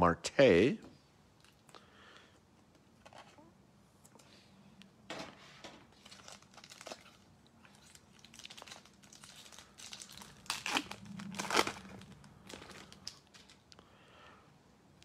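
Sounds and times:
plastic wrapper tearing and crinkling: 0:05.9 - 0:13.8.

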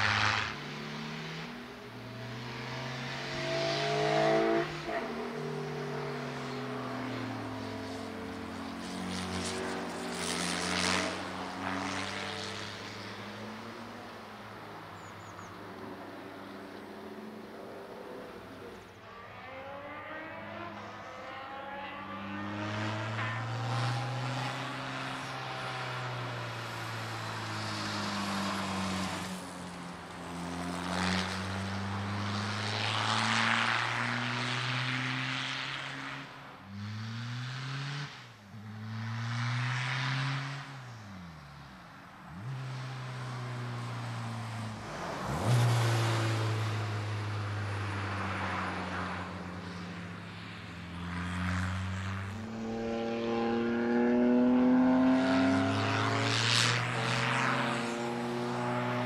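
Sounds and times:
race car engine revving: 0:02.2 - 0:13.6, 0:17.7 - 0:26.0, 0:51.0 - 0:59.0.

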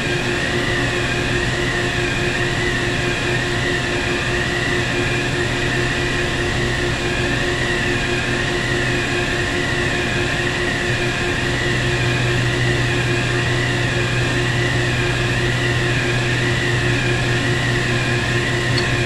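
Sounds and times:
wavering high machine whine: 0:00.0 - 0:19.0
machinery low hum: 0:10.0 - 0:19.0.

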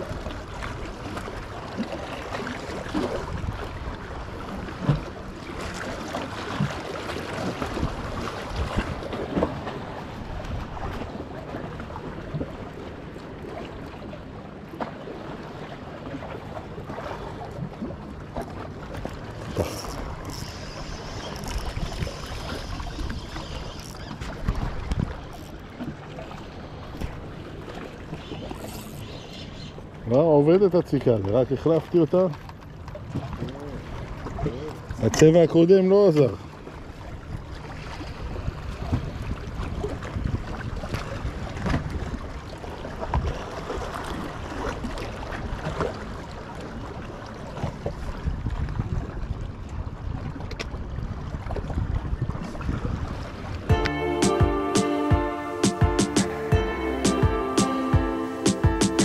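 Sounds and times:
water lapping: 0:00.0 - 0:53.9
fishing reel whirring: 0:19.6 - 0:24.2, 0:28.6 - 0:29.2
wind on microphone: 0:48.0 - 0:53.7.

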